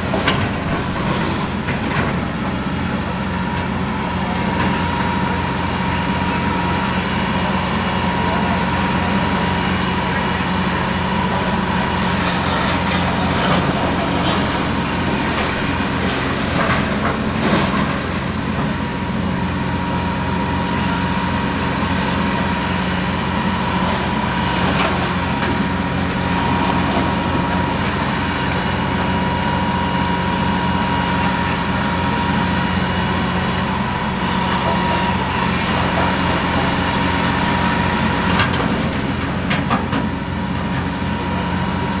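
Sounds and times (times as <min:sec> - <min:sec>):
falling masonry crashing: 0:00.0 - 0:02.3, 0:12.0 - 0:18.5
diesel engines of heavy machinery: 0:00.0 - 0:42.0.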